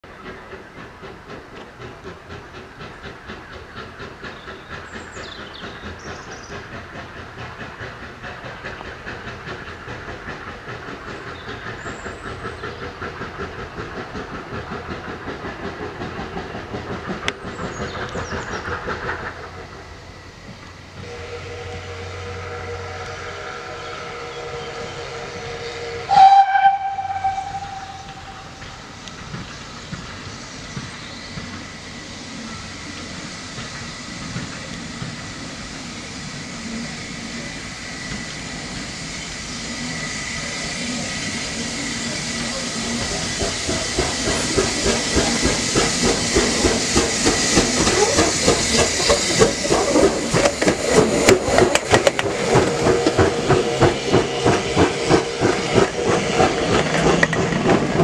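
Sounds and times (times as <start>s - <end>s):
steam locomotive chuffing: 0.0s - 58.0s
steam whistle blast: 21.0s - 28.6s.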